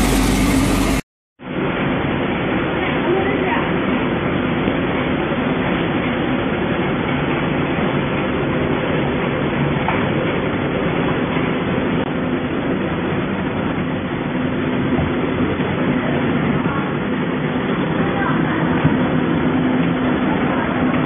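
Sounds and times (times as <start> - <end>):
packaging machine humming: 0.0 - 1.0.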